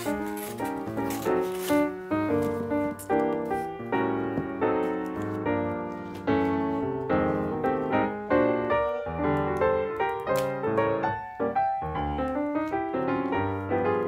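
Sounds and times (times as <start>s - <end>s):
piano music: 0.0s - 14.0s.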